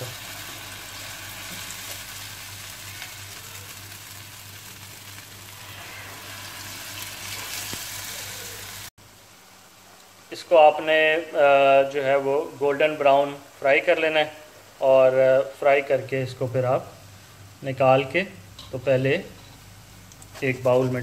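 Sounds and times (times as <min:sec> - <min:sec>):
fritters frying in hot oil: 0:00.0 - 0:10.3.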